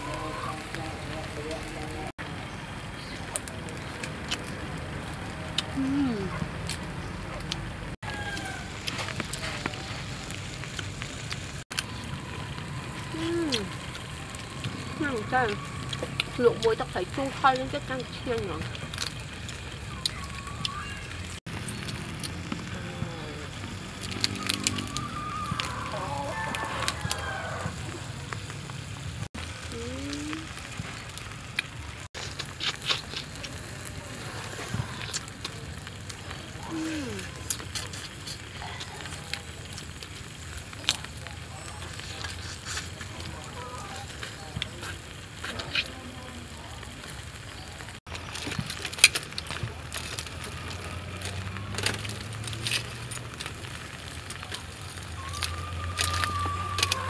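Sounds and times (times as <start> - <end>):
prawn shells crackling: 2.4 - 57.0
rooster crowing: 8.0 - 9.0, 24.8 - 28.0, 55.2 - 57.0
eating sounds: 29.6 - 57.0.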